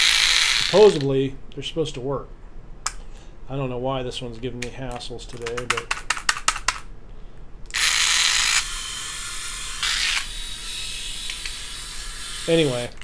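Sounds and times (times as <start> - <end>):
shaver motor whirring: 0.0 - 1.0, 7.7 - 12.9
shaver handling clicks: 4.6 - 6.9.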